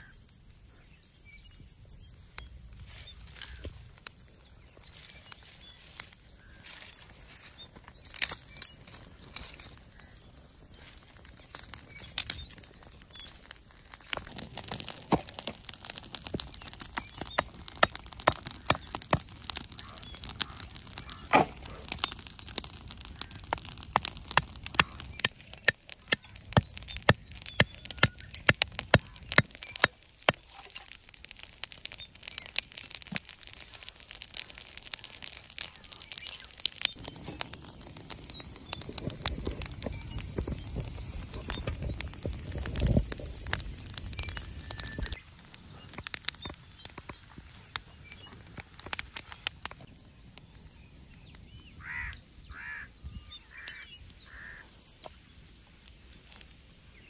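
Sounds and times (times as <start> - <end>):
fire crackling: 0.0 - 57.0
club knocking stakes into ground: 21.3 - 21.7.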